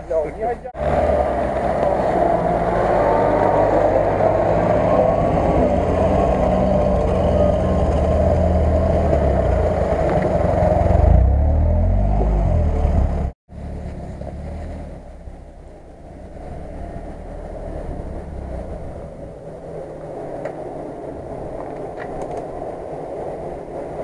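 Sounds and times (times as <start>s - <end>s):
off-road vehicle engine under load: 0.0s - 19.0s.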